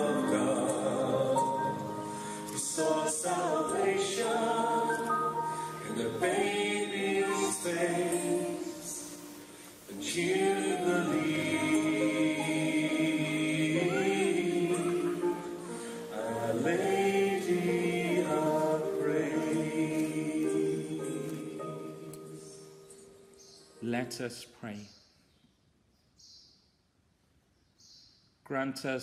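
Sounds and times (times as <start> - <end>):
choir singing a hymn: 0.0 - 22.9.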